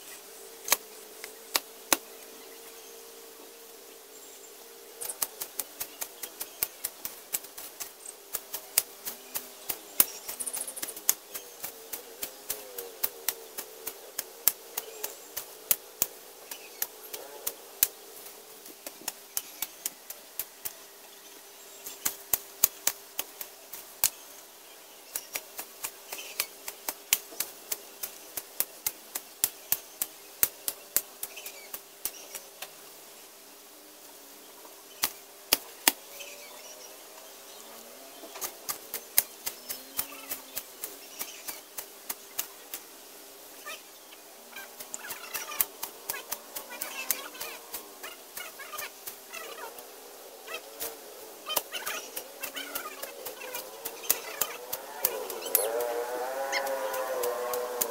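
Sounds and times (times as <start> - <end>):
blade chopping through grass: 50.8 - 57.9.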